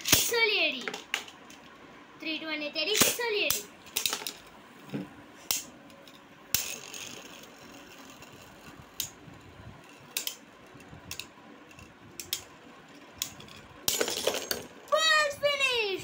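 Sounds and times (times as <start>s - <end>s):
spinning tops whirring: 5.5s - 15.2s
spinning tops clacking: 6.5s - 9.2s.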